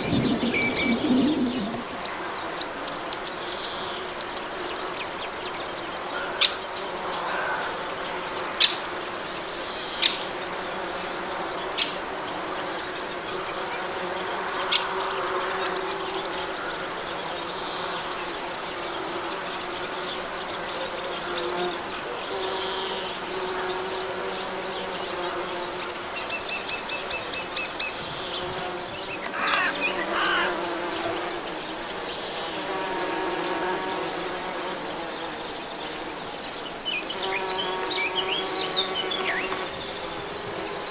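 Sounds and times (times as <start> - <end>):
bees buzzing: 0.0 - 6.0, 6.8 - 40.9
bird chirping: 0.0 - 6.6, 19.7 - 40.8
wavering call: 29.3 - 30.6.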